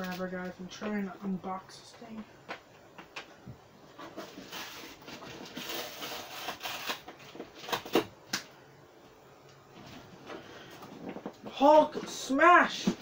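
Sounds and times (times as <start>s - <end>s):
cardboard rustling: 3.9s - 8.2s
hands scratching at duct tape: 4.0s - 8.1s.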